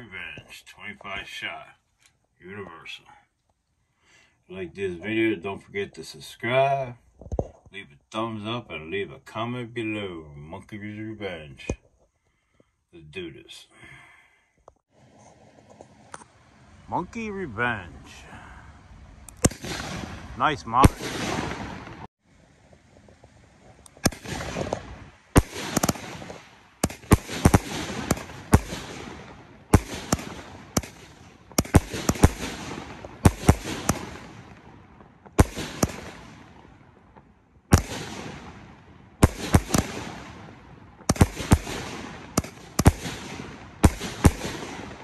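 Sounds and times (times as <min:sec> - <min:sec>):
firework shell crackling echo: 0:15.4 - 0:45.0.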